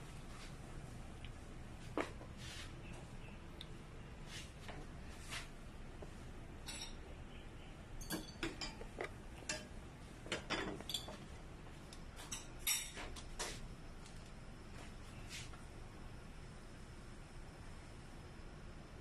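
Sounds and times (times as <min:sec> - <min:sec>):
low steady background noise: 0:00.0 - 0:19.0
pots and utensils clinking: 0:06.6 - 0:07.0, 0:08.0 - 0:11.2, 0:12.2 - 0:13.1.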